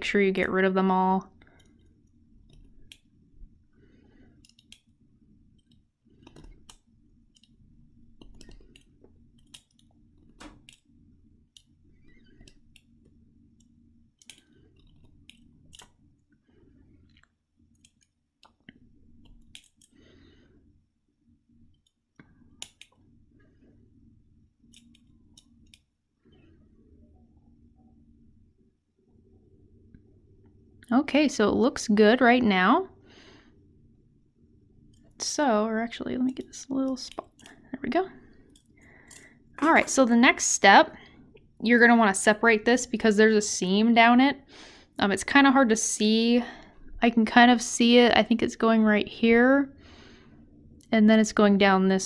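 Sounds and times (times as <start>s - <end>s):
faint scratches and clicks: 1.4s - 3.1s, 4.1s - 10.9s, 11.5s - 20.0s, 24.6s - 26.6s.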